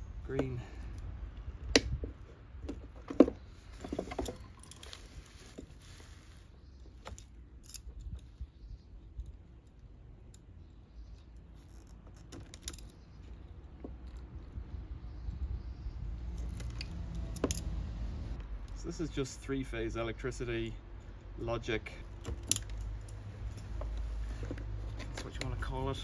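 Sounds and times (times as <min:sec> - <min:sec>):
wire stripper metallic clicks: 0:22.0 - 0:24.0.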